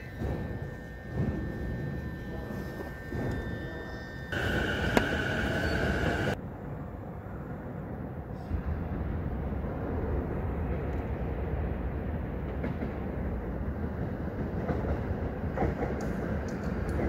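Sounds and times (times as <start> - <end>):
steady high whine: 0.0 - 6.4
electric train rumbling on tracks: 0.0 - 17.0.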